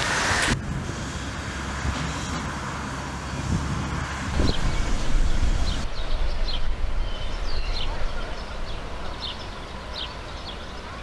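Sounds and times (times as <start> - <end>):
low uneven rumble: 3.4 - 11.0
songbirds chirping: 4.4 - 11.0.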